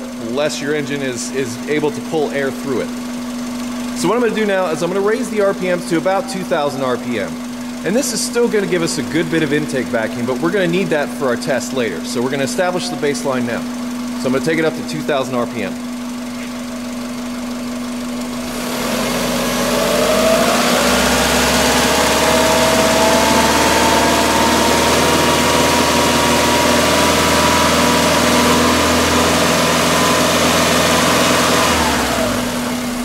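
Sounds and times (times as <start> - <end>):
car engine revving: 13.4 - 33.0.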